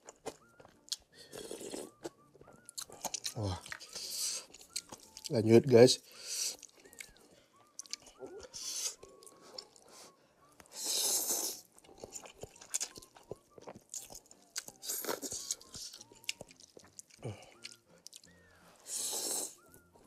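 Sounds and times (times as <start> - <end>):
chewing and wet mouth clicks: 0.0 - 5.3, 6.5 - 9.7, 11.8 - 18.3
slurping noodles: 1.2 - 2.0, 10.7 - 11.7, 18.8 - 19.6.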